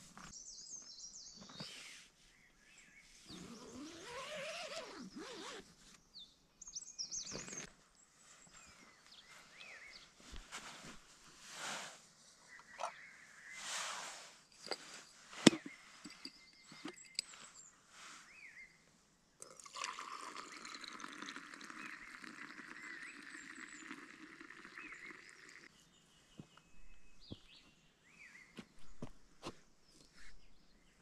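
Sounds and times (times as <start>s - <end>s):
small bird chirping: 2.8s - 7.8s, 14.6s - 18.8s
tea pouring into a glass jug: 19.4s - 25.7s.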